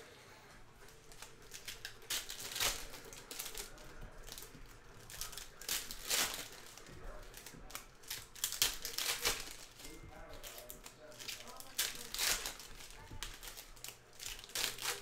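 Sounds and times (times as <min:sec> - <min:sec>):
foil wrappers crinkling and tearing: 0:00.8 - 0:15.0.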